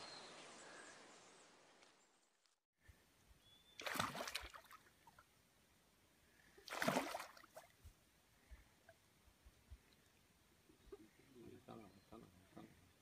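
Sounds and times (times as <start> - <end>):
water splashes: 3.8 - 5.3, 6.6 - 7.8.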